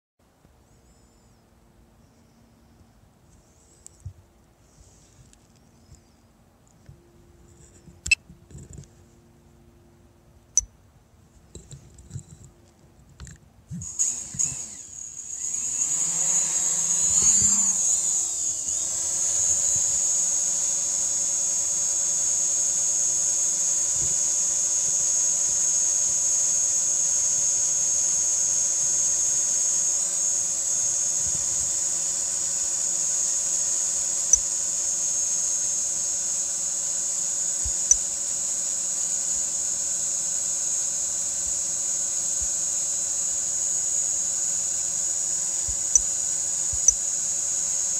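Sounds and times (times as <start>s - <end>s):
drone propeller buzz: 13.8s - 47.9s.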